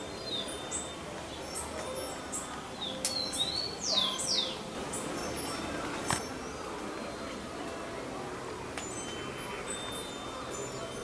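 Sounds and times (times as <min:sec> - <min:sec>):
birds chirping: 0:00.0 - 0:07.6.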